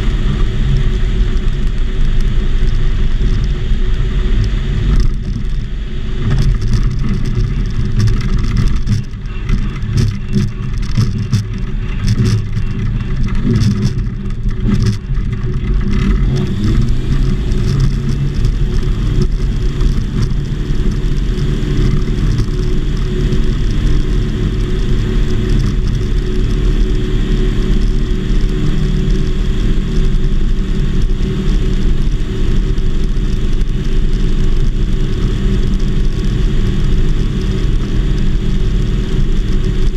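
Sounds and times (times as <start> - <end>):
aircraft engine and propeller drone: 0.0 - 39.9
knocks and rattles: 6.2 - 26.9.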